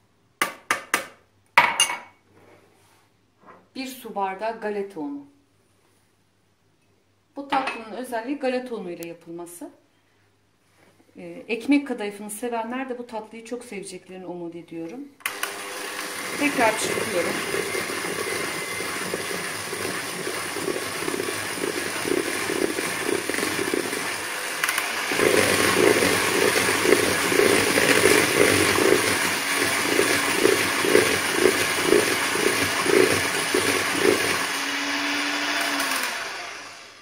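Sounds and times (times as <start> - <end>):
electric hand mixer whirring: 15.3 - 37.0.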